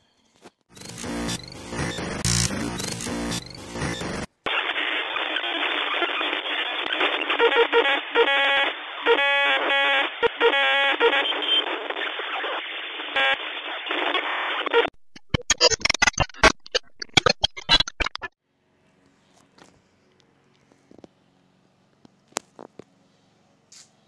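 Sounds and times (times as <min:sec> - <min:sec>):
distorted music through small radio: 0:00.8 - 0:18.3
crackling clicks: 0:14.8 - 0:18.4.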